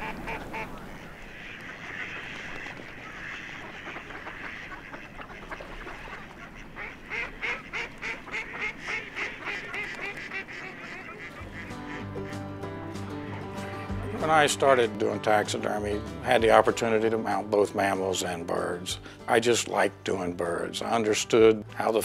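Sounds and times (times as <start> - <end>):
ducks quacking: 0.0 - 22.0
geese honking: 0.0 - 22.0
music: 11.2 - 22.0.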